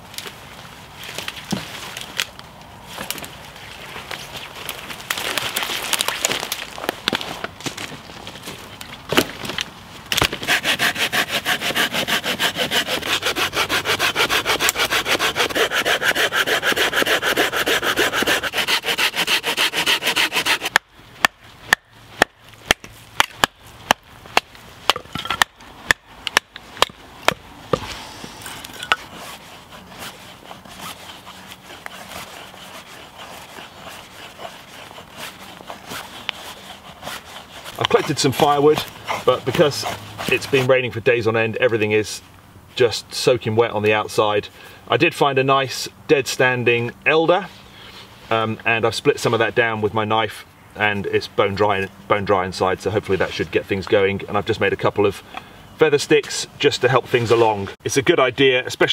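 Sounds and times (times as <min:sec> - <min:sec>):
hand saw cutting wood: 0:10.2 - 0:22.8, 0:27.7 - 0:40.8
knife carving wood scraping: 0:10.2 - 0:40.8.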